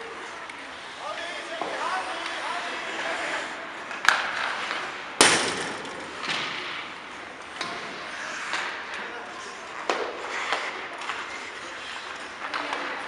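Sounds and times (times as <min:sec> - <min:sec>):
hockey stick hitting puck: 0:01.4 - 0:02.4, 0:03.9 - 0:09.0, 0:09.7 - 0:13.0.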